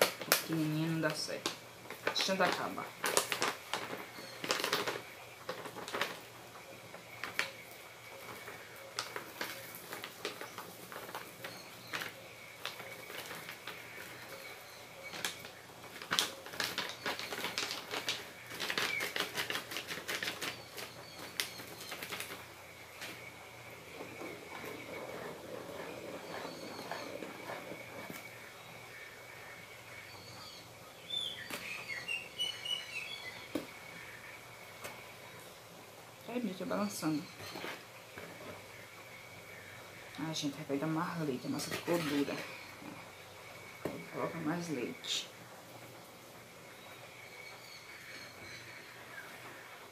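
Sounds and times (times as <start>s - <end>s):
utensil scraping plastic bowl: 8.2s - 28.7s, 41.2s - 43.1s.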